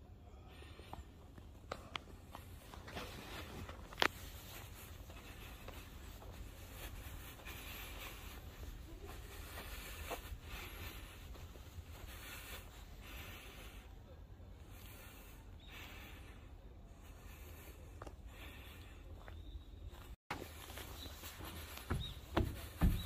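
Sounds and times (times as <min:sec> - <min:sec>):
footsteps crunching on dirt trail: 0:01.7 - 0:13.8, 0:17.3 - 0:23.0.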